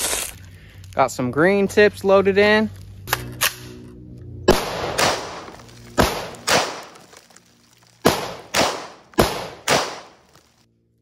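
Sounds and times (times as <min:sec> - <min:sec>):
rifle shots: 0:04.5 - 0:07.0, 0:08.0 - 0:10.2.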